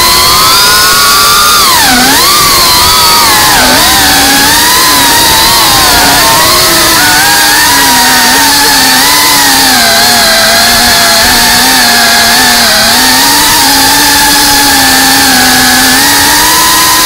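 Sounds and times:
drone motors buzzing: 0.0s - 17.0s.

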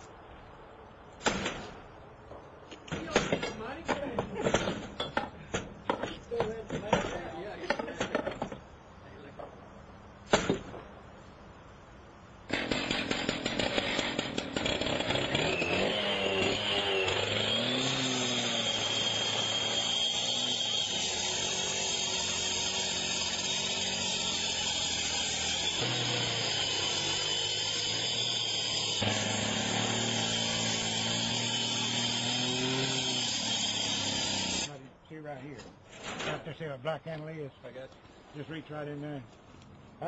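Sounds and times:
gas-powered saw cutting metal: 12.5s - 34.7s.

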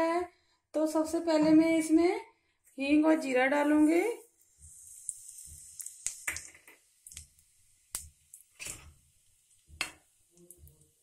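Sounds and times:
faint sizzle: 2.8s - 11.0s
seeds popping in hot oil: 4.4s - 11.0s.

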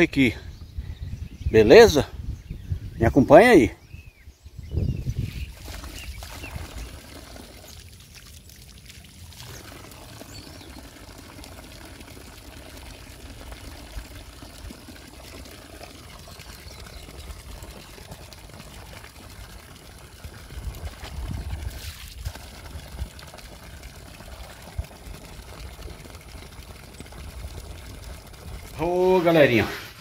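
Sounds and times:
wind rumbling on microphone: 0.0s - 7.0s, 20.2s - 23.2s
water pouring and trickling: 5.0s - 30.0s.

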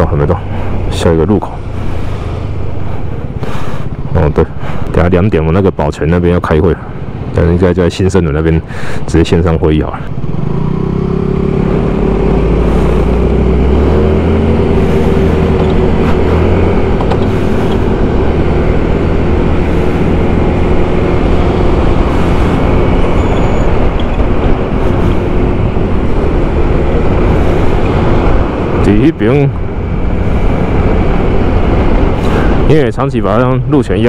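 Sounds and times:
wind noise on microphone: 12.7s - 28.8s.

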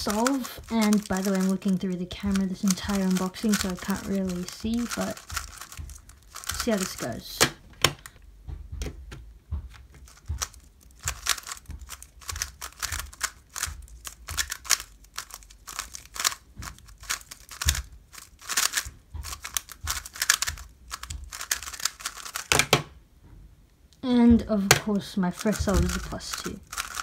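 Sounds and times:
puzzle cube clicking: 0.0s - 8.2s, 10.0s - 22.9s, 24.7s - 27.0s.

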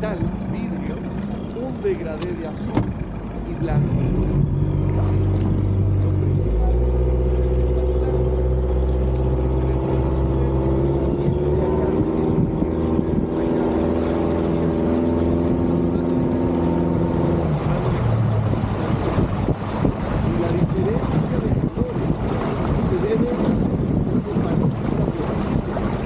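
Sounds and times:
outboard motor running: 0.0s - 26.0s
rushing water: 0.0s - 26.0s
wind noise: 10.9s - 15.6s, 16.2s - 26.0s.

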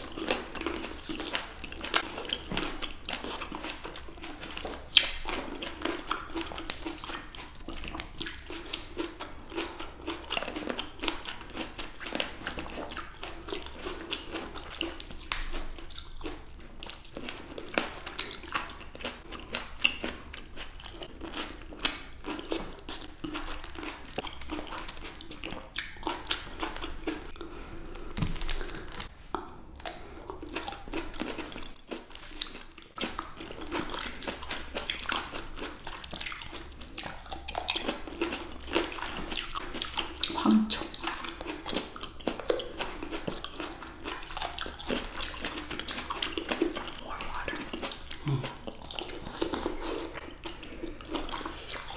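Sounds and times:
people biting and chewing grapes: 0.0s - 51.9s.

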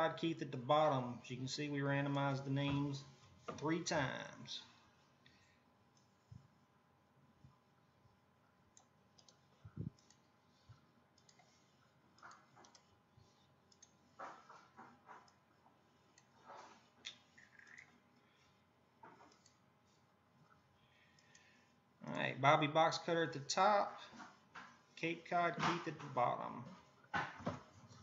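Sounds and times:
mouse and keyboard clicks: 17.0s - 17.9s.

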